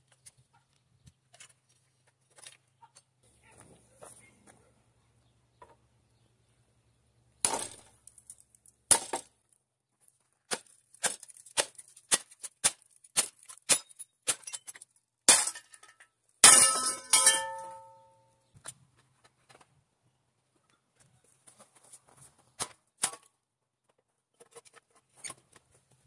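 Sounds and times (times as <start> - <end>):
clattering crash with clang: 16.4 - 18.1
metal-on-metal strikes: 16.4 - 18.1.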